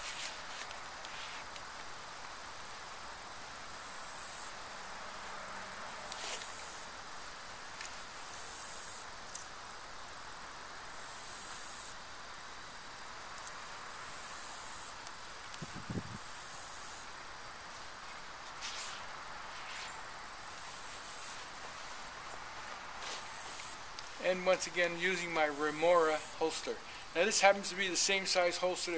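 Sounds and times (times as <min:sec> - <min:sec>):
insects buzzing: 0:00.0 - 0:28.9.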